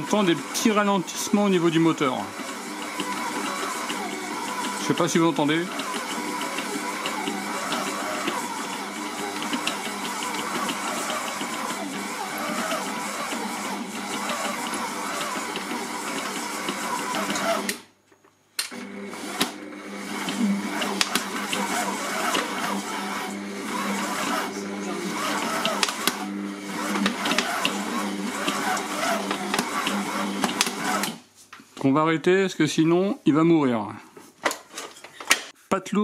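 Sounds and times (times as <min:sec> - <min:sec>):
stand mixer churning dough: 0:00.0 - 0:17.8, 0:18.7 - 0:31.2
mixer beater knocks: 0:01.3 - 0:17.8, 0:20.3 - 0:31.2.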